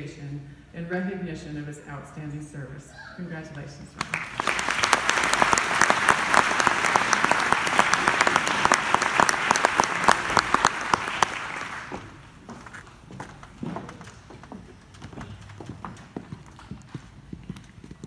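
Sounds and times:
audience applauding: 0:04.0 - 0:12.4.

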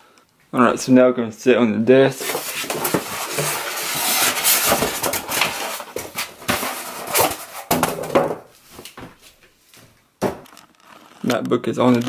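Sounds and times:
styrofoam scraping cardboard: 0:02.2 - 0:07.7.

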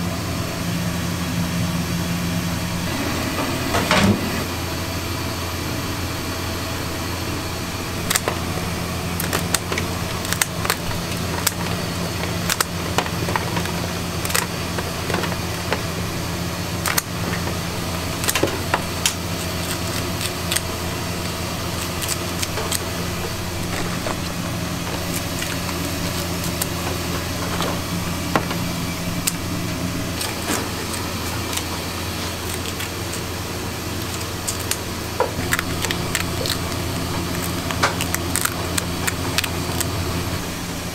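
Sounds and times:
low machine hum: 0:00.0 - 0:40.9
scissors cracking crab shells: 0:08.0 - 0:16.0, 0:16.7 - 0:27.8, 0:29.2 - 0:29.5, 0:30.1 - 0:33.3, 0:33.9 - 0:40.0.

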